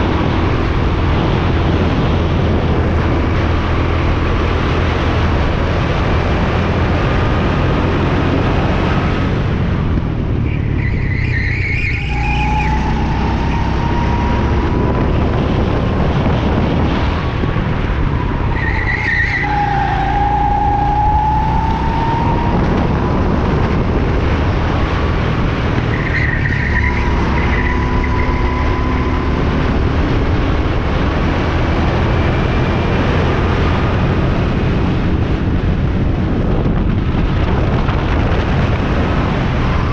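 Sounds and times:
go-kart engine revving: 0.0 - 36.4
tyres squealing: 18.2 - 22.8.

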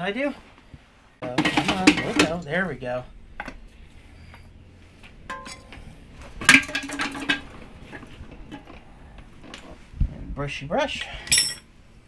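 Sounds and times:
metal tools clinking: 11.0 - 11.7.

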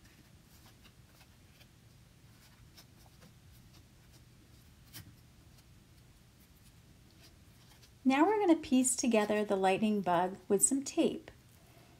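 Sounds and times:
paper rustling: 0.0 - 8.0.

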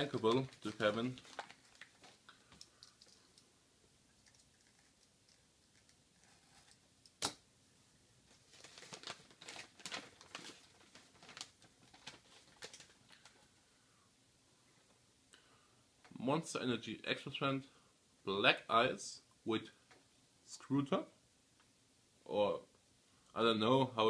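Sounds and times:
newspaper rustling and crinkling: 0.0 - 2.3, 8.3 - 13.5.

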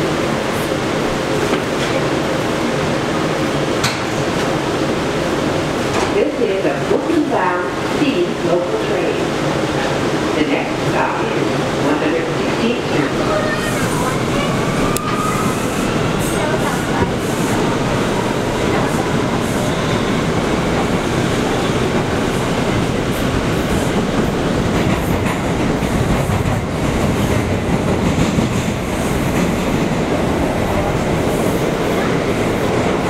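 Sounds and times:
subway wheels rumbling on rails: 0.0 - 33.0.

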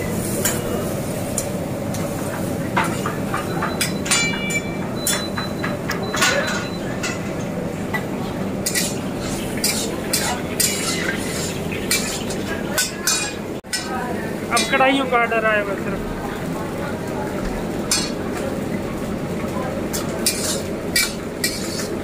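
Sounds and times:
metal ladle scraping woks: 8.6 - 13.8, 20.2 - 22.0.

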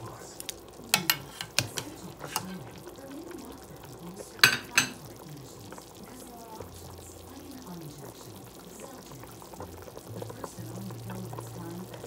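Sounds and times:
soup simmering: 0.0 - 12.0
metal utensil clinking on pot: 0.9 - 2.6, 4.4 - 5.0.

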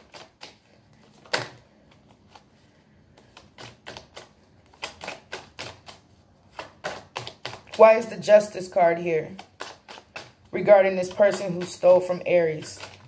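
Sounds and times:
cards shuffled by hand: 0.0 - 13.0.

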